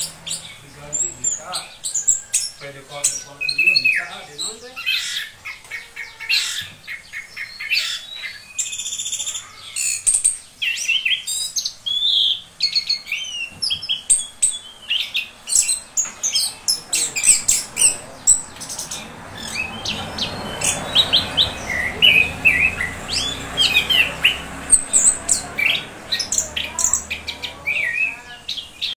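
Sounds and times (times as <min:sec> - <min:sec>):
bird singing chirps and trills: 0:00.0 - 0:29.0.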